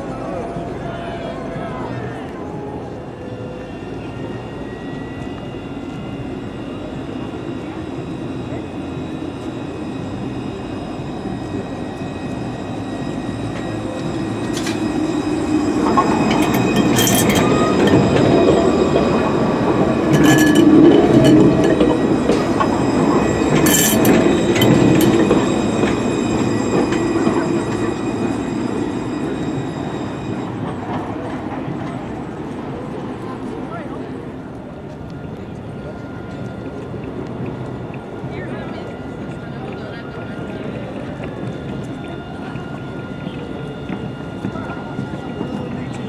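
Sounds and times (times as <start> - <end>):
tram rolling on rails: 0.0 - 46.0
high whining tones: 2.9 - 31.4
sharp wheel sounds: 14.4 - 18.7, 19.8 - 26.1.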